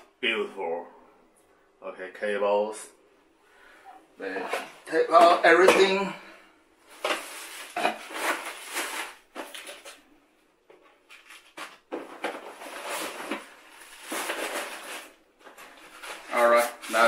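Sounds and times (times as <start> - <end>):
cables and packaging rustling: 6.8 - 17.0.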